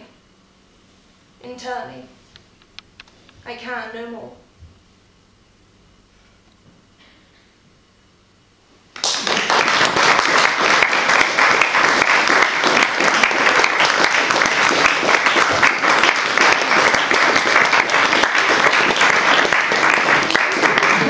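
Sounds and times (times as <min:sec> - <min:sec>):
small audience clapping: 0:08.9 - 0:21.0.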